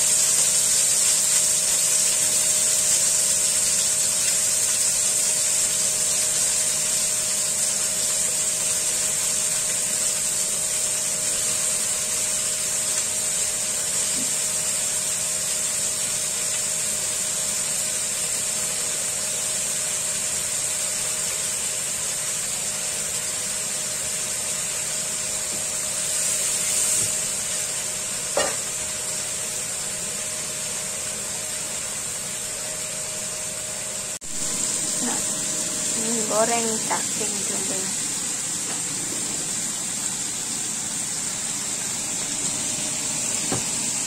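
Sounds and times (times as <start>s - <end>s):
food sizzling in a frying pan: 0.0s - 44.0s
steady hum: 25.4s - 44.0s.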